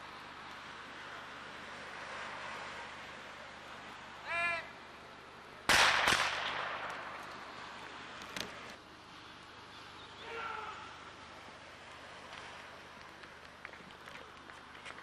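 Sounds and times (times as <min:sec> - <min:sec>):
short high call: 0:04.2 - 0:04.7
starting pistol cracks: 0:05.7 - 0:07.3.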